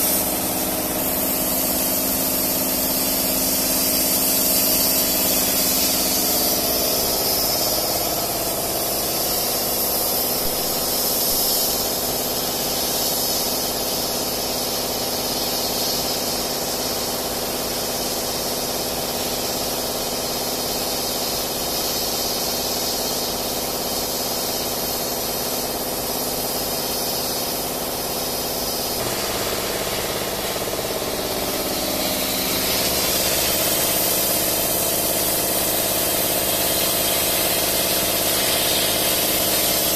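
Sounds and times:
laser cutter machine hum: 0.0s - 12.3s, 28.9s - 39.9s
laser cutter hiss: 0.0s - 39.9s.

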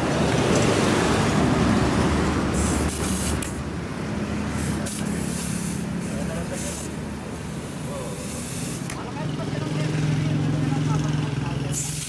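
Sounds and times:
street traffic noise: 0.0s - 12.0s
compressed air hissing: 2.5s - 3.6s, 4.5s - 9.0s, 11.7s - 12.0s.

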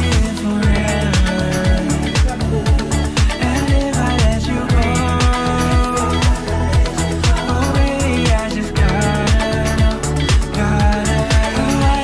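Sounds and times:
pop dance music with bass: 0.0s - 12.0s.

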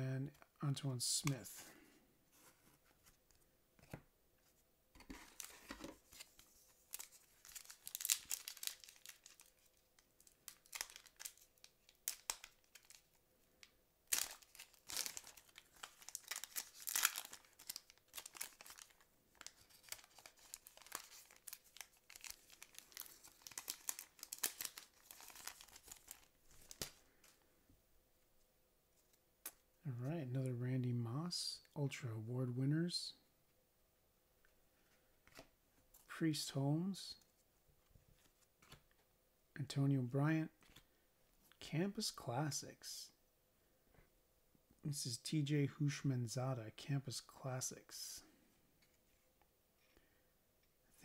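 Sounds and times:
foil wrapper tearing and crinkling: 6.9s - 9.8s, 10.5s - 13.1s, 14.1s - 26.9s.

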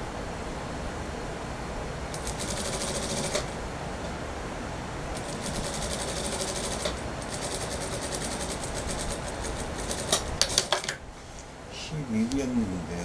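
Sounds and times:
sewing machine stitching: 2.1s - 3.5s, 5.2s - 10.9s.

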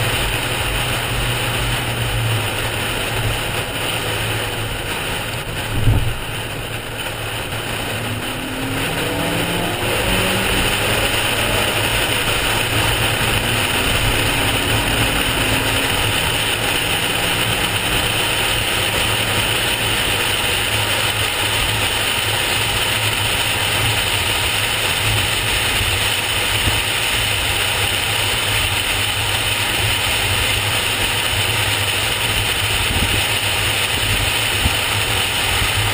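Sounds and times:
car engine accelerating: 0.0s - 35.9s
tyre and wind road noise: 0.0s - 35.9s.

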